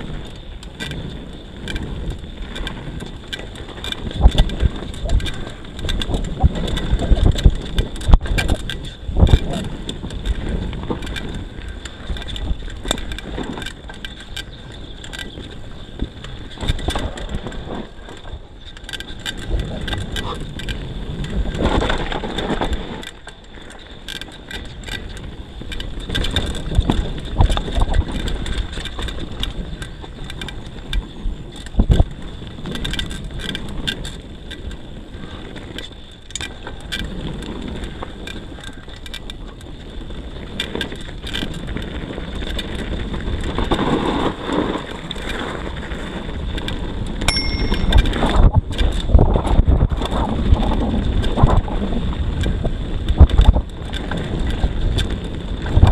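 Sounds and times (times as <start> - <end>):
bike tyres rolling over dirt: 0.0 - 55.9
wind noise on microphone: 0.0 - 55.9
chain and frame rattling: 47.3 - 49.0.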